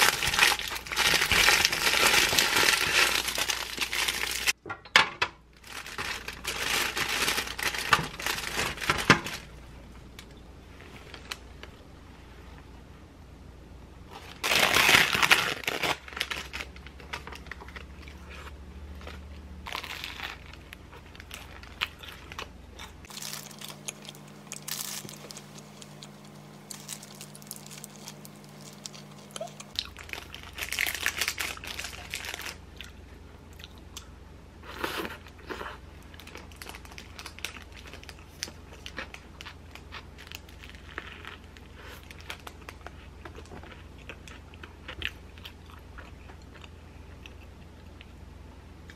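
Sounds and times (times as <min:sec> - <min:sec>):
paper wrapper crinkling and tearing: 0:00.0 - 0:04.6, 0:05.6 - 0:09.6, 0:14.1 - 0:18.1, 0:19.7 - 0:22.5, 0:23.1 - 0:32.6, 0:36.1 - 0:43.7
person chewing: 0:17.5 - 0:36.6, 0:37.8 - 0:48.2.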